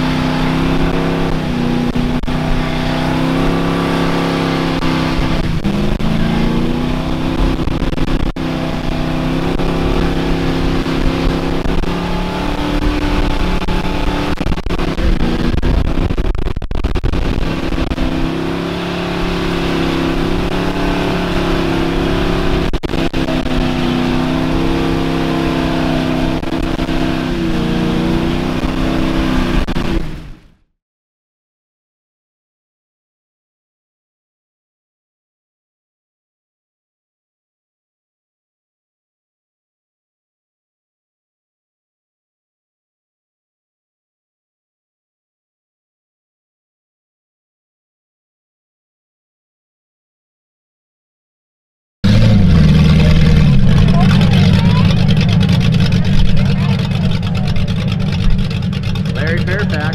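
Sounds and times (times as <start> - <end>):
truck engine revving hard: 0.0 - 30.4, 52.0 - 59.9.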